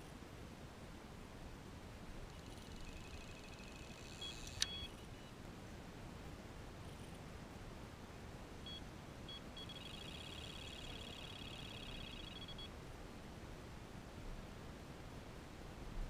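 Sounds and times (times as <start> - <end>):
electronic bite alarm bleeps: 2.8 - 5.0, 8.7 - 12.7.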